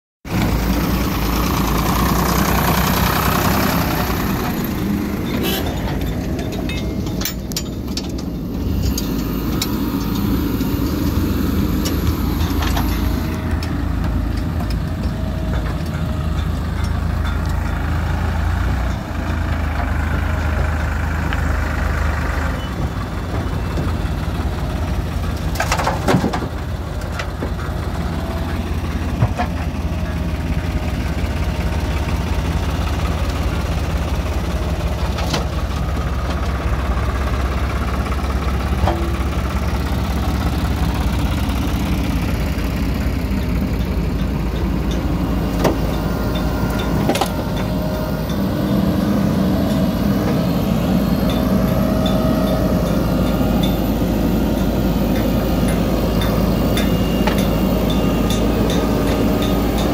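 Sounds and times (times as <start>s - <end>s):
diesel engines running: 0.2s - 59.9s
backhoe digging soil: 0.3s - 30.6s.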